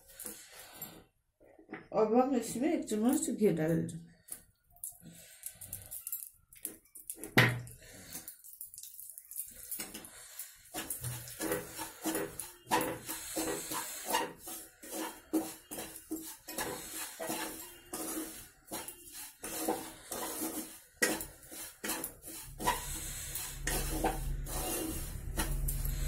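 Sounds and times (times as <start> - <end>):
spatula scraping a frying pan: 10.1 - 26.0.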